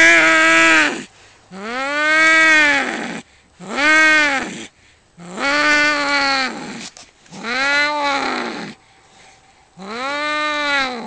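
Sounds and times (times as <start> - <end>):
cats yowling: 9.8 - 11.0.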